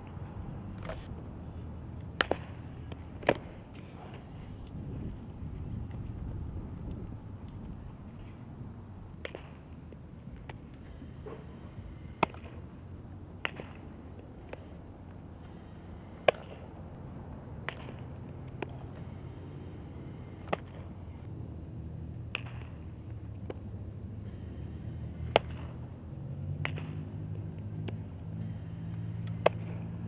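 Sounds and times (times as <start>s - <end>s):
softball being hit and caught: 2.1s - 3.5s, 9.2s - 9.6s, 12.2s - 12.6s, 13.4s - 13.8s, 16.2s - 16.6s, 17.6s - 18.8s, 20.4s - 20.9s, 22.3s - 22.8s, 25.3s - 25.8s, 26.6s - 27.2s, 27.8s - 28.1s, 29.3s - 29.8s.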